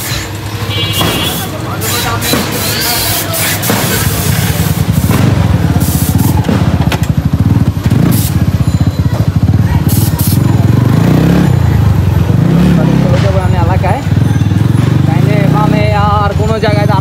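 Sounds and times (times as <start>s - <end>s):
motorcycle engine running slowly: 4.5s - 17.0s.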